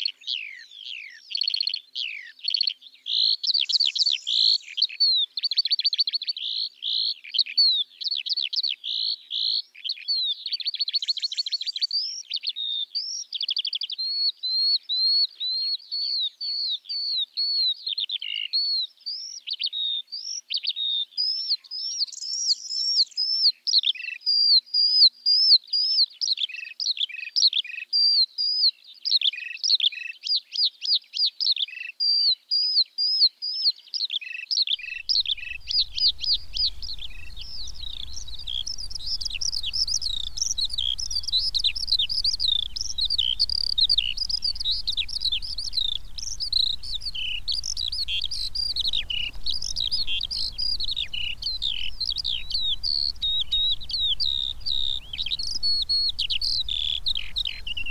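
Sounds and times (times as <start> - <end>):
skylark singing: 34.8 - 57.9
low rumble: 35.0 - 57.9.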